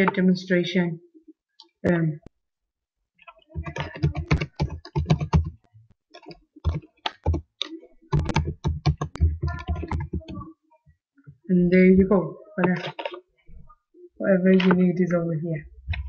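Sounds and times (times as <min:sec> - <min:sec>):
typing on computer keyboard: 0:03.3 - 0:05.6, 0:06.2 - 0:10.4.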